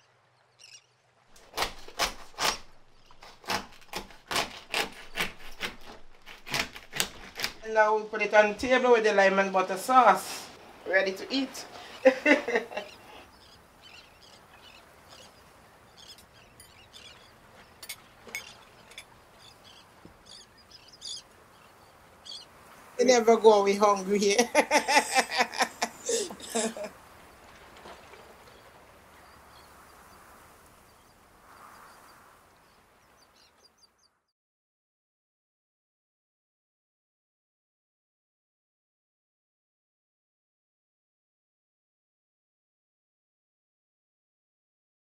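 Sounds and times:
small birds chirping: 0.0s - 1.0s, 12.8s - 22.8s, 28.4s - 34.2s
water lapping: 0.1s - 33.6s.

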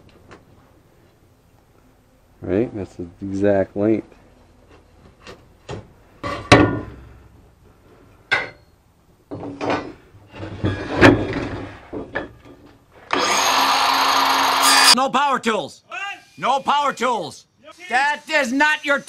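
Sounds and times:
circular saw cutting plywood: 13.1s - 15.0s.

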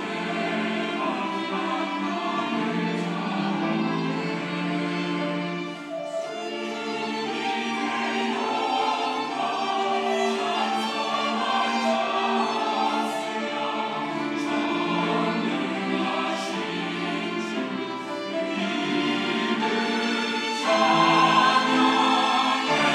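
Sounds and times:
mixed choir singing: 0.0s - 22.9s.

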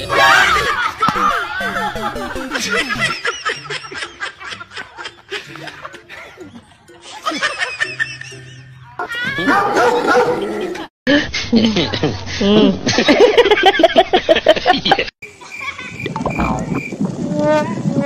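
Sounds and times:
background music: 0.1s - 10.7s
laughter in bursts: 0.5s - 8.9s, 10.4s - 16.1s.

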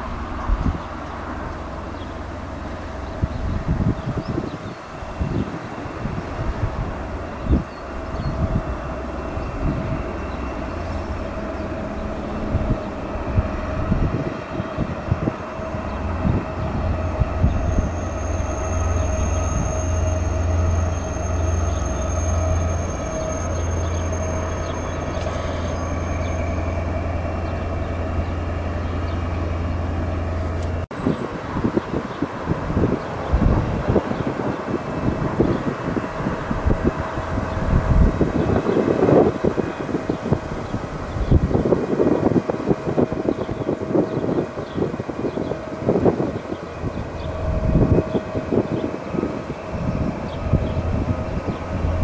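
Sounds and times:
diesel engine droning: 0.0s - 52.0s
thin high squeal: 17.6s - 27.2s.

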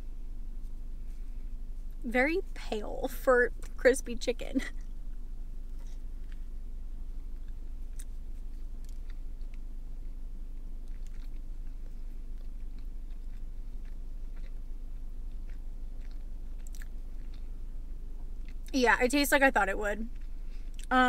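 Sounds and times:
steady low hum: 0.0s - 21.0s
wet mouth clicks chewing: 7.3s - 17.6s.

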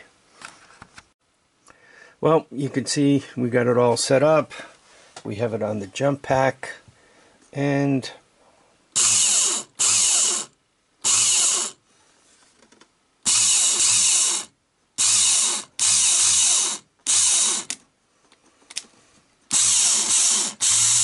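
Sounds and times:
electric starter motor spinning: 9.0s - 11.8s, 13.2s - 17.8s, 19.5s - 21.0s.

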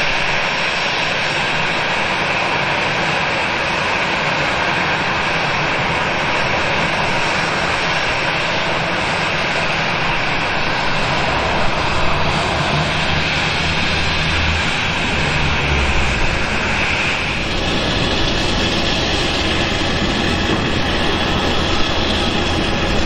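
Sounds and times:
jet engines idling: 0.0s - 23.0s
low rumble: 10.8s - 23.0s.

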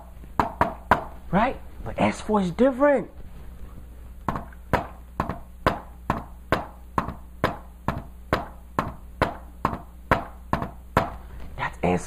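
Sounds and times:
hand tapping on a whiteboard: 0.4s - 1.2s, 4.2s - 11.2s.

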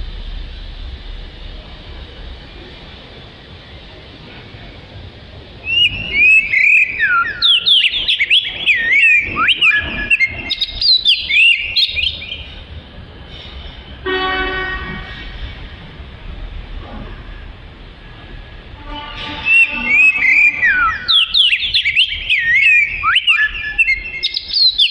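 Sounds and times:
steady tone: 0.0s - 7.4s
bird singing whistled phrases: 5.6s - 12.5s, 19.4s - 24.9s.

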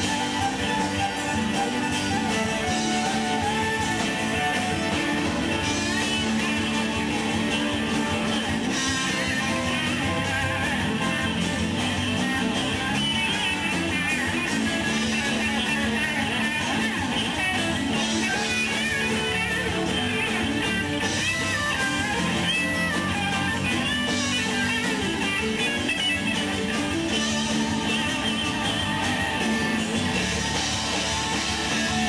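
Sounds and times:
country rock band playing: 0.0s - 32.0s
fiddle: 0.0s - 32.0s.

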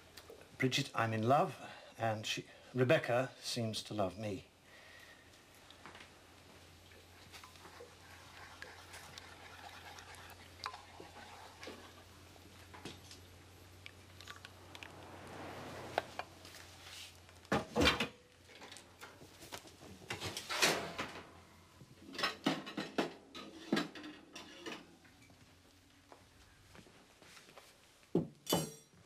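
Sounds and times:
pan and crockery clattering: 20.1s - 21.2s, 22.1s - 24.9s
sharp knocks and clinks: 28.4s - 29.0s.

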